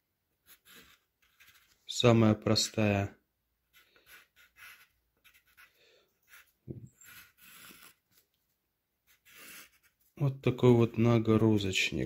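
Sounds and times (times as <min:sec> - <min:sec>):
pencil scratching on paper: 0:00.4 - 0:01.8, 0:03.6 - 0:08.2, 0:09.0 - 0:10.1
person breathing: 0:05.6 - 0:06.2.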